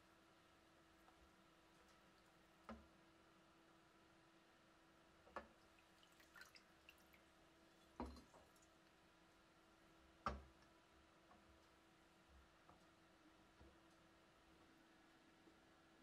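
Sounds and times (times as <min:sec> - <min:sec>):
liquid dripping and splashing: 0:05.4 - 0:09.0.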